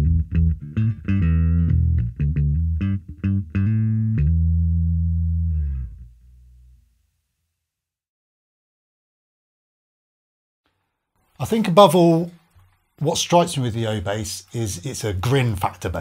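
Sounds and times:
electric bass plucked: 0.0 - 7.0.

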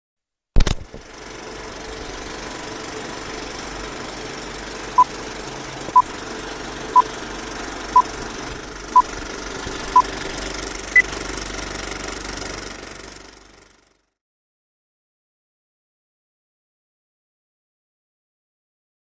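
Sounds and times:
film projector whir: 0.6 - 14.0.

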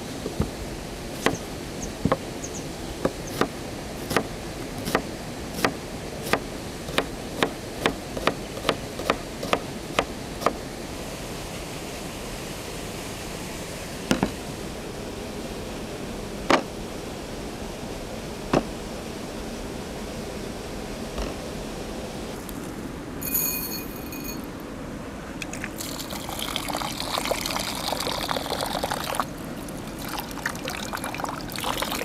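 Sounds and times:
knife chopping vegetables: 3.1 - 10.6.

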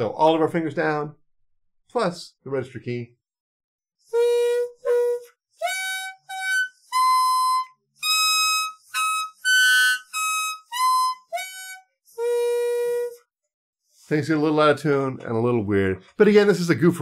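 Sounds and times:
muted clarinet notes: 4.1 - 13.2.

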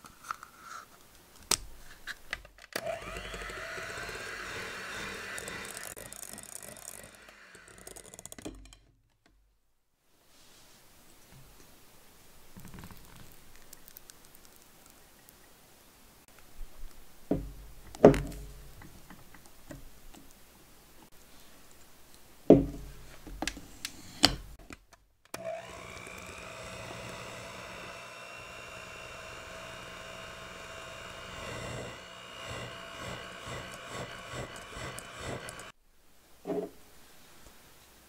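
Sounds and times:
electric hand mixer whirring: 2.8 - 8.4, 25.4 - 35.8.

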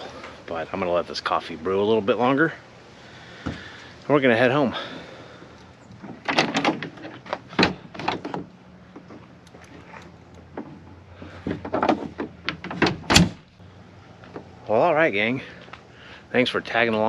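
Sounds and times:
truck door clunks and latch clicks: 5.9 - 9.6, 11.5 - 13.5
tailgate knocking and slamming shut: 6.1 - 8.5, 11.4 - 13.5.

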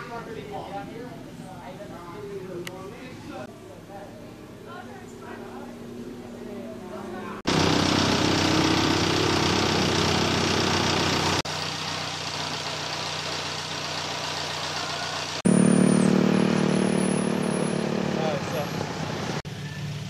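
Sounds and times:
vehicle engine running: 5.2 - 20.0.

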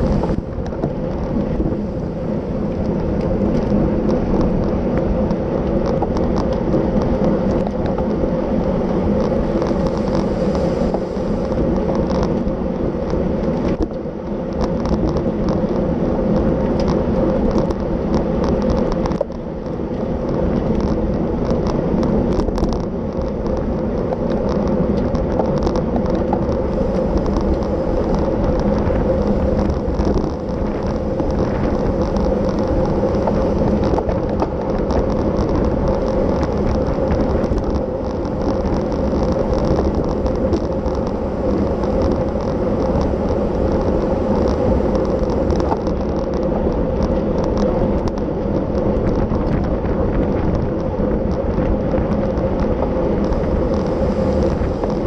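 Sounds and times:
bicycle tyre and road noise: 0.0 - 55.0
wind rushing over microphone: 0.0 - 55.0
low hum: 25.8 - 55.0.

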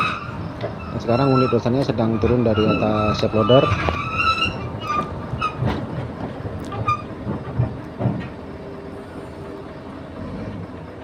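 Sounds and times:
short squeaks: 0.0 - 5.8, 6.6 - 7.2
diesel engine rumbling: 0.0 - 11.0
steel tracks clanking: 0.0 - 11.0.

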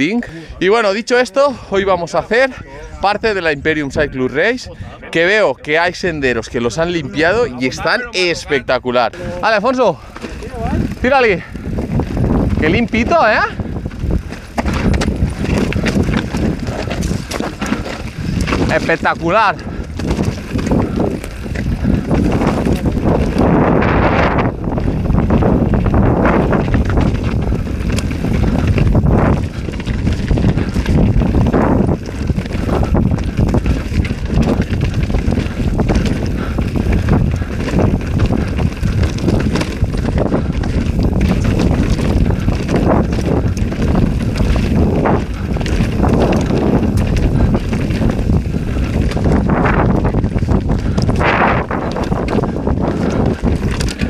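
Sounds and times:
wind buffeting microphone: 0.0 - 54.0
bike knocks and rattles: 9.6 - 54.0.

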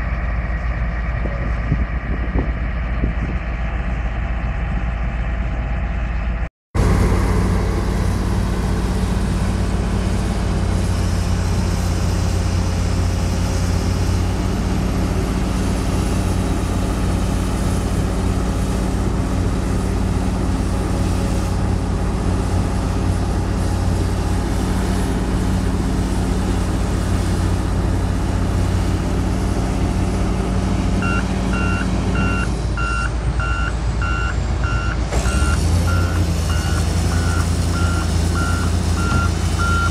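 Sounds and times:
heavy diesel machinery running: 0.0 - 39.9
reversing alarm beeping: 31.0 - 39.9.

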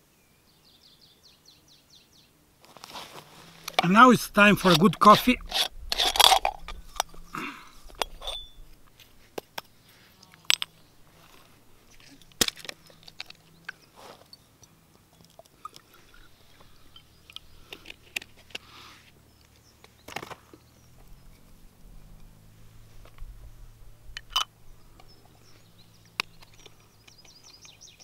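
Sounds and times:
camp gear clicking and knocking: 3.4 - 14.3, 16.5 - 18.7, 24.1 - 25.4, 26.1 - 28.0.

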